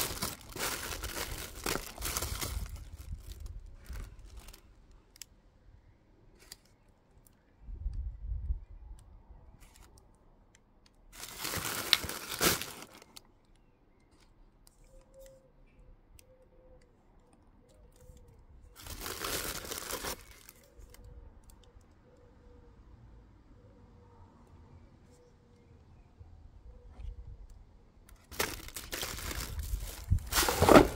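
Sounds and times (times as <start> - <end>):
tissue paper rustling: 0.0 - 4.6, 11.2 - 13.0, 18.8 - 20.5, 28.3 - 30.9.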